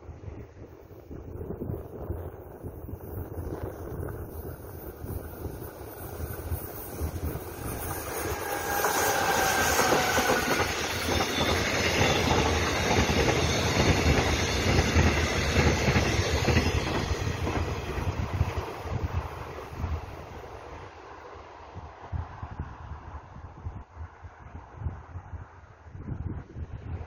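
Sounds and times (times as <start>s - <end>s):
train wheels rumbling on rails: 1.1s - 21.0s.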